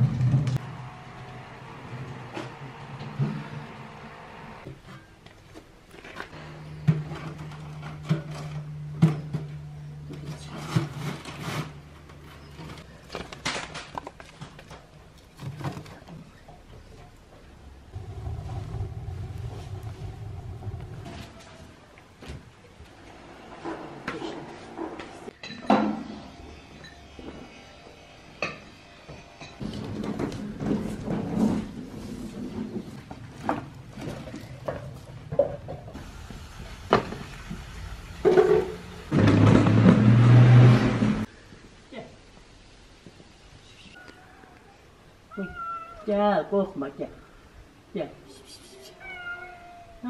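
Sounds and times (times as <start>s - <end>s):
wheelbarrow rattling over concrete: 0.0s - 0.6s, 29.6s - 36.0s, 38.2s - 41.3s
metal knocking and scraping on metal: 29.4s - 36.0s.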